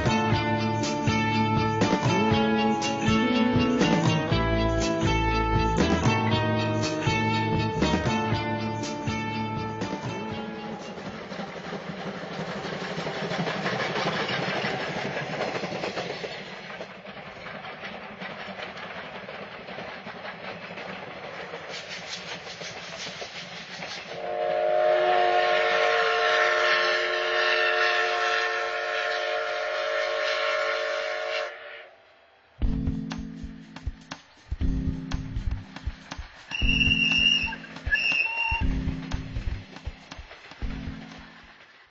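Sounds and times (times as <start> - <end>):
steam locomotive chuffing: 0.0 - 31.8, 33.0 - 41.9
steam whistle: 24.2 - 31.9, 36.5 - 38.7.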